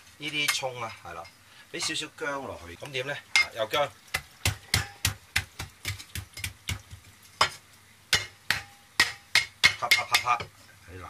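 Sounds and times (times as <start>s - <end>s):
cleaver chopping on wooden block: 4.2s - 6.8s.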